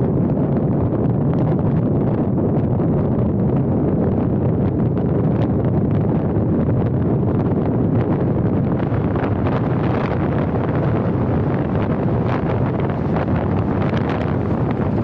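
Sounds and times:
wind rumble on microphone: 0.0 - 15.0
road and traffic noise: 8.0 - 15.0.

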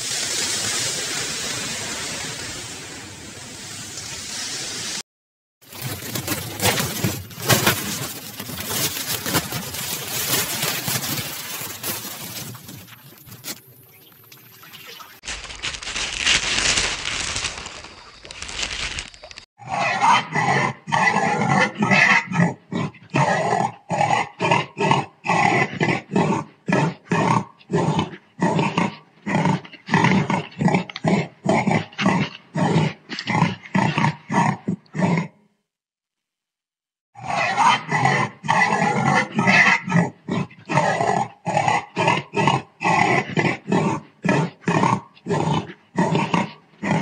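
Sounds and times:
pig grunting: 37.2 - 47.0.

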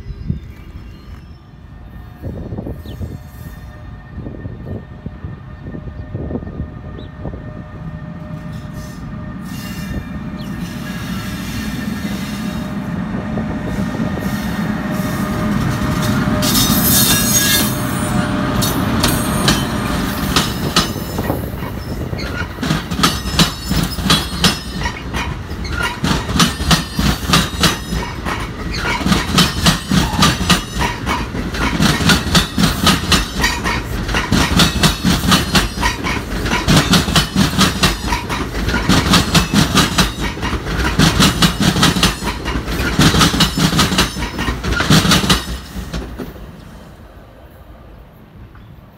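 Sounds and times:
train passing by rumbling: 0.0 - 48.9
wheels clacking over rail joints: 15.5 - 46.6.

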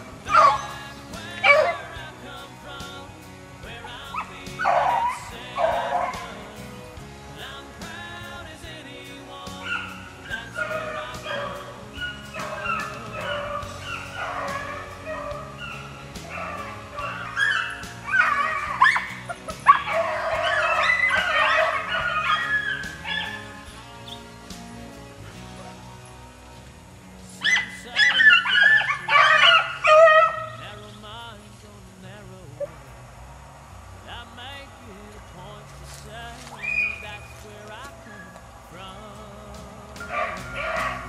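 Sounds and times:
dogs baying: 0.0 - 2.1, 3.9 - 6.7, 9.5 - 26.3, 27.4 - 30.6, 36.5 - 38.7, 39.9 - 41.0
music track: 0.0 - 33.1.

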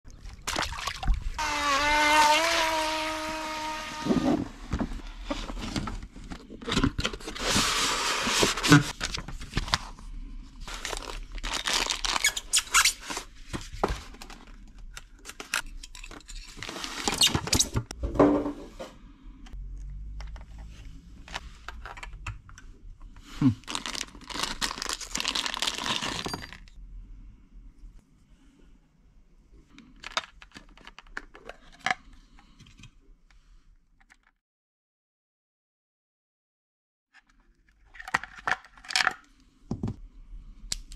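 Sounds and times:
plastic packaging crinkling: 10.6 - 13.2, 23.6 - 26.7
plastic parts clicking and knocking: 19.8 - 22.7, 29.9 - 32.9.

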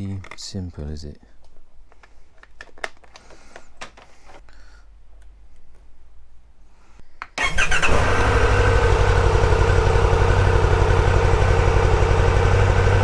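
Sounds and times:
motorcycle engine starting and idling: 7.4 - 13.0.

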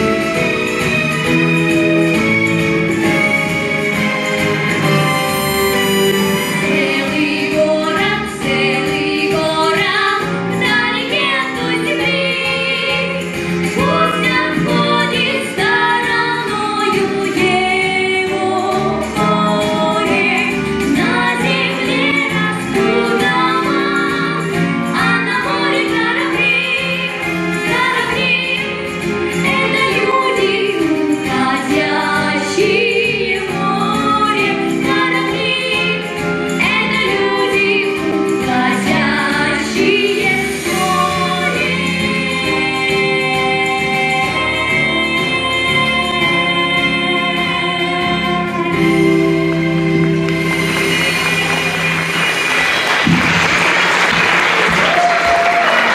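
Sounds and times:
instrumental accompaniment: 0.0 - 55.7
girl singing: 6.8 - 13.2, 13.8 - 28.6.

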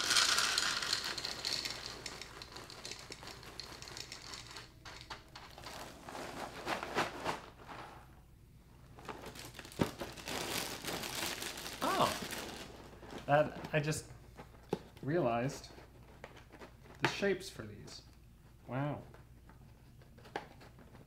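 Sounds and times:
cereal pouring into a bowl: 0.0 - 4.8
plastic bag crinkling: 0.0 - 7.9, 8.9 - 13.9.

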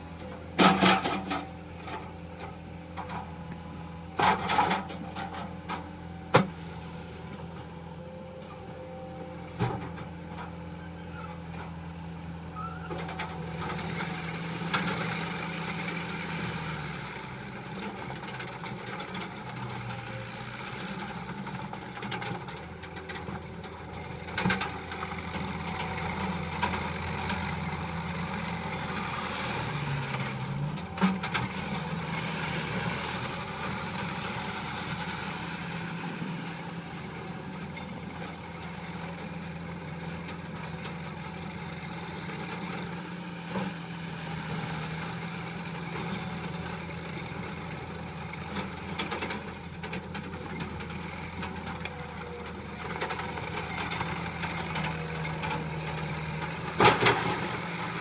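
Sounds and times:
diesel engine running: 0.0 - 58.0.

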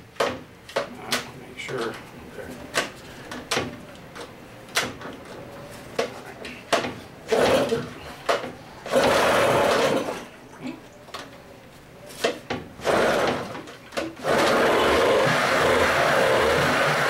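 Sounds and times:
outboard motor starting and running: 8.9 - 10.2, 12.8 - 13.6, 14.2 - 17.0.

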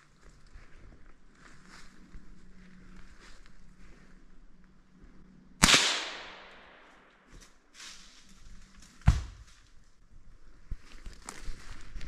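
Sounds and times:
gunshots echoing: 5.6 - 7.1.

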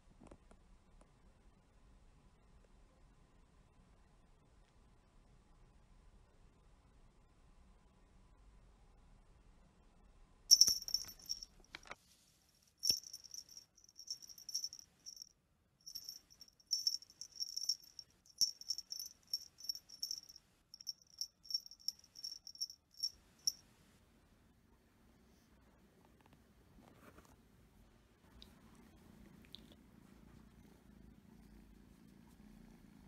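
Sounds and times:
small jingle bell jingling: 10.5 - 11.6, 12.8 - 23.6.

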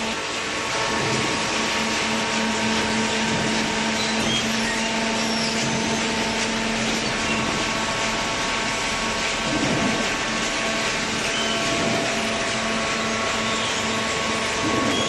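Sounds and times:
baler machine humming: 0.0 - 15.0.

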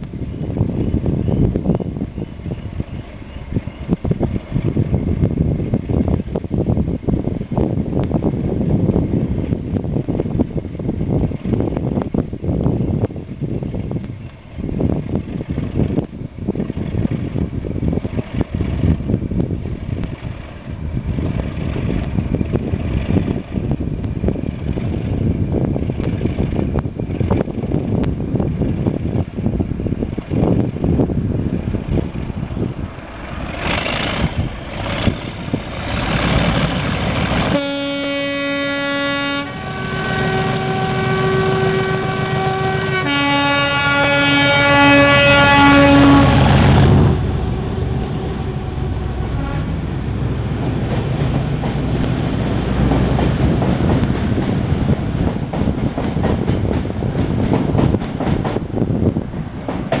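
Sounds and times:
diesel locomotive engine rumble: 0.0 - 60.0
two-tone locomotive horn: 37.4 - 50.7.

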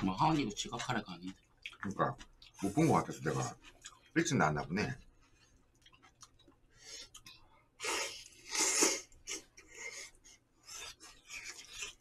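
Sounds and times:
slurping noodles: 2.6 - 3.6, 7.8 - 10.1.

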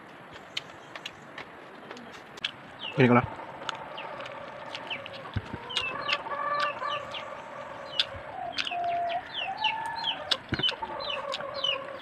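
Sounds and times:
chickens clucking: 0.4 - 12.0.

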